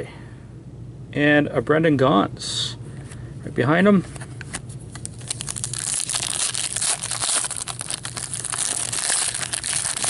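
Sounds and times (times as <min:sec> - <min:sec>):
wrapper tearing and crinkling: 0:04.9 - 0:10.0.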